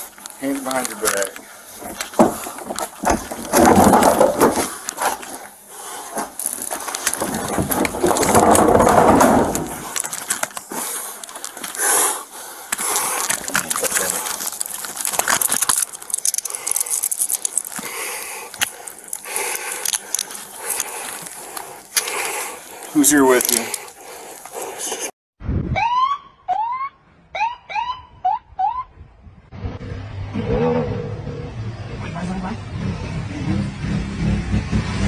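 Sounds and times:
scraping on concrete: 0:00.0 - 0:25.1.

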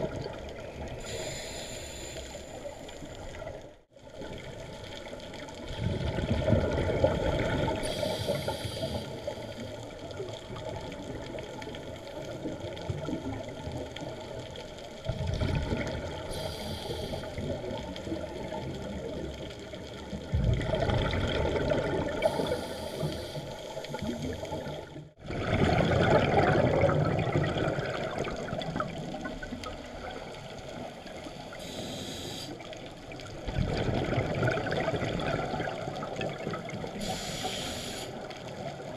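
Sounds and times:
exhaled air bubbling: 0:00.0 - 0:38.9
regulator inhalation hiss: 0:01.0 - 0:03.1, 0:07.8 - 0:09.6, 0:16.3 - 0:17.4, 0:22.2 - 0:24.6, 0:31.5 - 0:32.6, 0:37.0 - 0:38.2.

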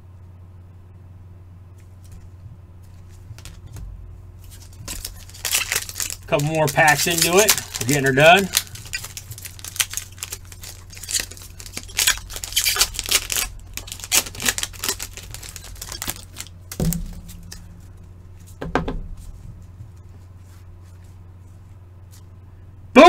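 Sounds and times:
cards being handled: 0:01.8 - 0:22.4
card wrappers tearing and crinkling: 0:04.4 - 0:17.7.

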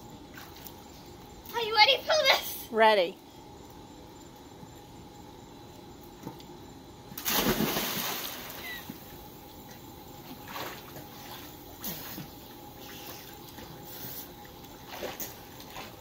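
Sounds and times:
loud splash into pool: 0:07.2 - 0:08.8
water splashing and sloshing: 0:07.2 - 0:16.0.

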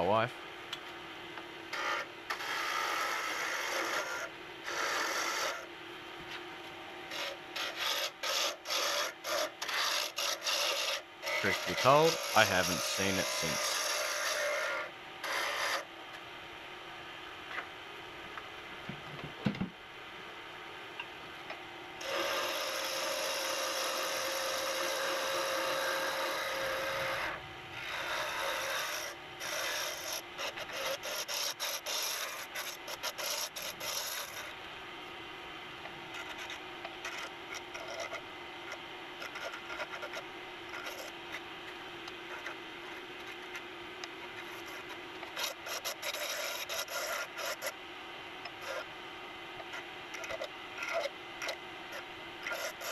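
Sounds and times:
wood lathe humming: 0:01.7 - 0:05.6, 0:07.1 - 0:15.8, 0:22.0 - 0:34.6, 0:39.2 - 0:41.1, 0:44.4 - 0:47.7, 0:52.4 - 0:52.9
turning tool scraping wood: 0:01.7 - 0:05.7, 0:07.1 - 0:15.9, 0:22.0 - 0:34.6, 0:36.1 - 0:43.6, 0:44.2 - 0:47.8, 0:48.4 - 0:48.9, 0:49.6 - 0:52.9.

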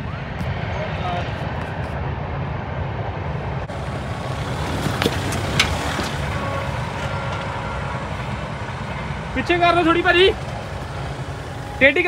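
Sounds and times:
car engine running: 0:03.7 - 0:12.0.

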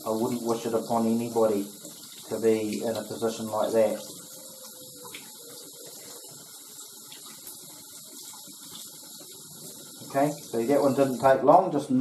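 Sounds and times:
tap water splashing: 0:01.7 - 0:11.2.

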